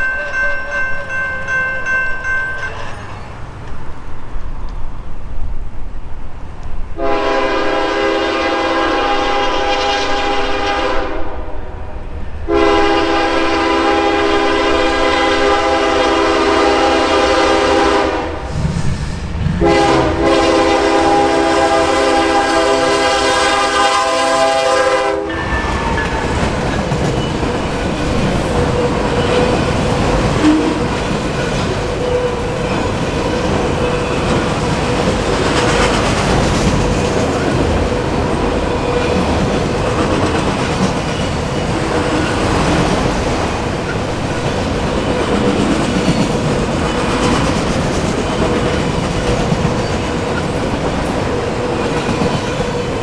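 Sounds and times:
locomotive air horn blasts: 0:07.0 - 0:11.5, 0:12.5 - 0:18.5, 0:19.6 - 0:25.8, 0:30.4 - 0:31.0
train wheels clattering over rails: 0:25.3 - 0:53.0.

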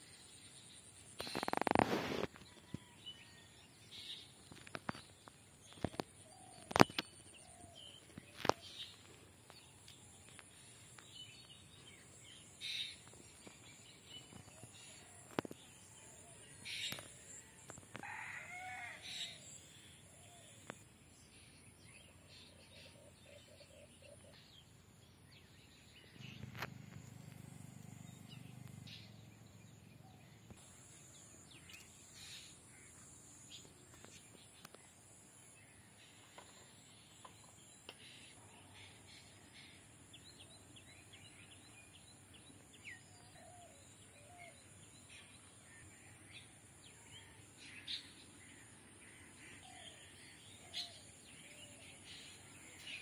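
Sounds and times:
birdsong: 0:00.0 - 0:53.0
rooster crowing: 0:17.6 - 0:19.4.

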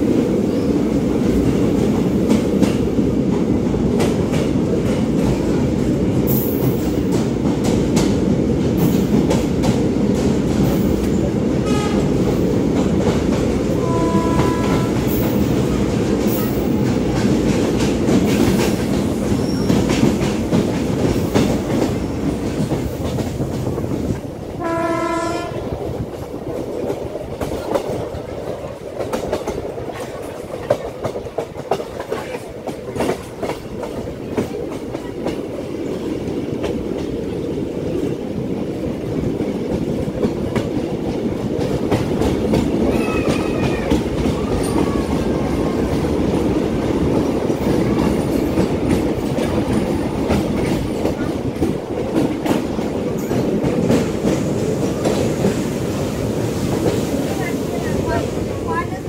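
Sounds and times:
train rumbling in tunnel: 0:00.0 - 0:59.0
locomotive horn: 0:11.6 - 0:12.2, 0:13.8 - 0:15.3, 0:24.6 - 0:25.7.

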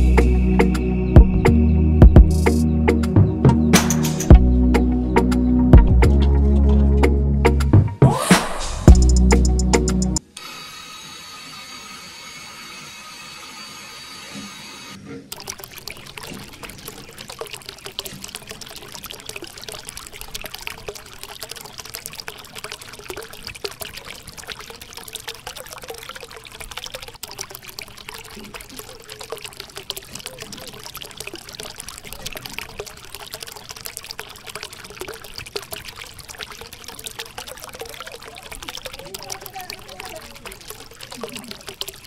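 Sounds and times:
water pouring and splashing into puddle: 0:12.4 - 0:42.0.

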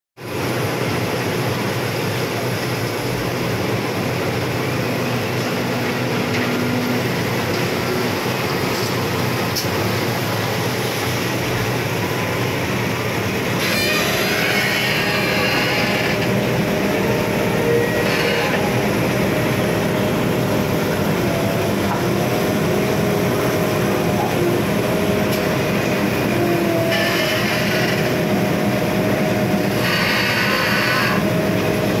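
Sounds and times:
excavator mechanical rumble: 0:00.3 - 0:32.0
wavering whine tones: 0:10.6 - 0:32.0.

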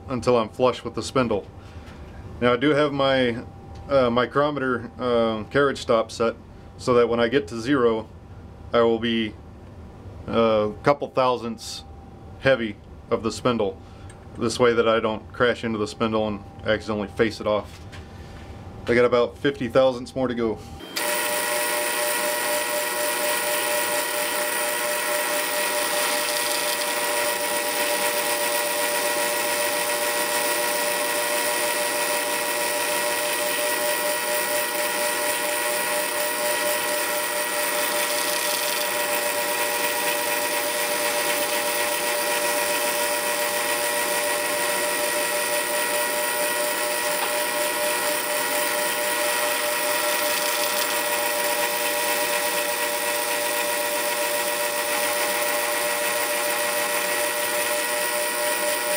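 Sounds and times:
lathe running with a whine: 0:20.7 - 0:58.9.

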